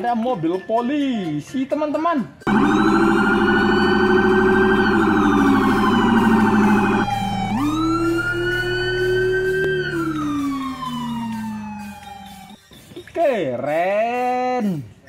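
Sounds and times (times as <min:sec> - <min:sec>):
police siren warbling and wailing: 0:02.5 - 0:12.6.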